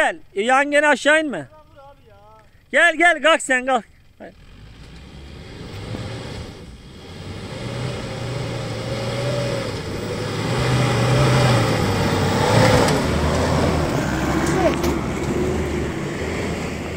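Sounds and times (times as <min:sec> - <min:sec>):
pickup engine working hard: 0:03.9 - 0:16.9.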